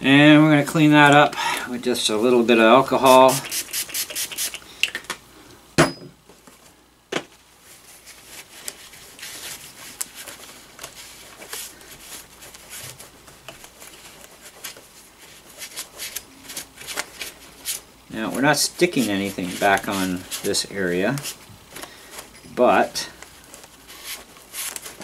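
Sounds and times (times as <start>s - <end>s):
scrubbing on plastic: 2.2s - 4.6s, 7.7s - 21.8s.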